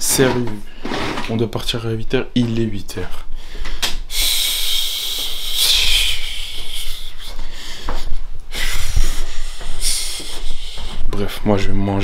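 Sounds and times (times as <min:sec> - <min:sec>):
hands rubbing over microphone: 0:08.0 - 0:11.4.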